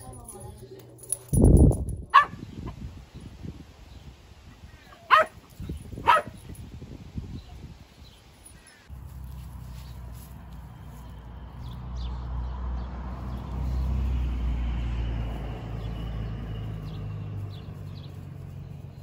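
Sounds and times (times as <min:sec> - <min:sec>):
puppy barking: 0:02.1 - 0:02.4, 0:04.9 - 0:06.4
rustling: 0:08.2 - 0:11.2.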